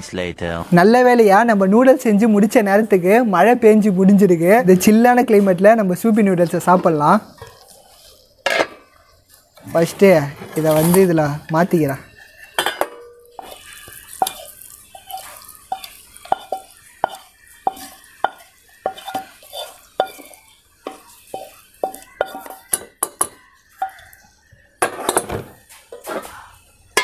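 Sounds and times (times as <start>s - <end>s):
metal spoon clinking on pan: 6.4s - 9.4s, 11.5s - 25.3s.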